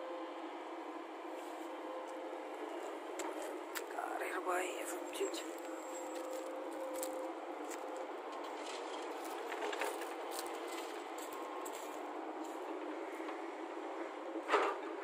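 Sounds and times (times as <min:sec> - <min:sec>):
excavator engine running: 0:00.0 - 0:15.0.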